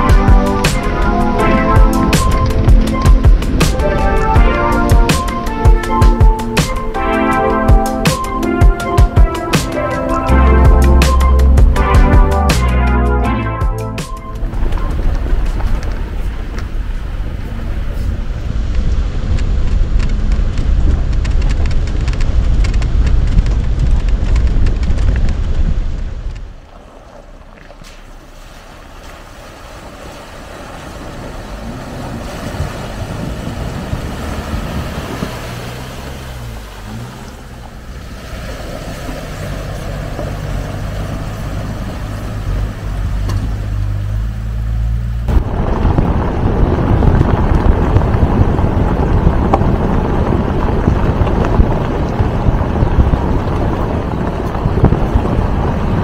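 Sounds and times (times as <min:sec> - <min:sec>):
wind buffeting microphone: 0:00.0 - 0:12.4, 0:14.4 - 0:56.0
steady hum with rushing: 0:00.0 - 0:26.7
low car rumble: 0:00.0 - 0:56.0.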